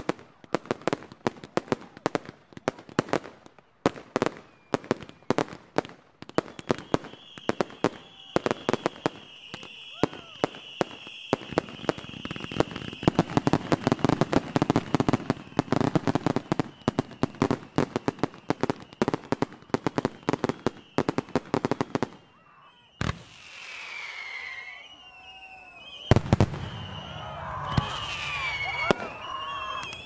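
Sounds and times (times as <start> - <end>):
fireworks bursting and crackling: 0.0 - 30.0
whistling fireworks rising: 0.0 - 30.0
firework bang: 26.1 - 29.3.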